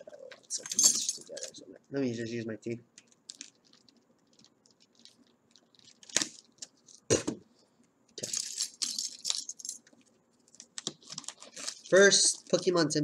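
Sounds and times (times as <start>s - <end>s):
plastic rustling: 3.0s - 7.2s, 8.2s - 12.8s
plastic packaging torn with teeth: 3.3s - 7.1s.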